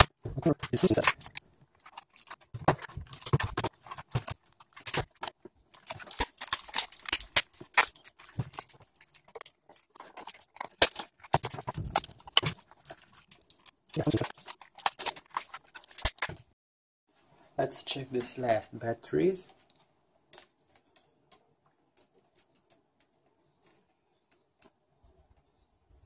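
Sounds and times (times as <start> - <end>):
plastic casing cracking and scraping: 0.0 - 16.5.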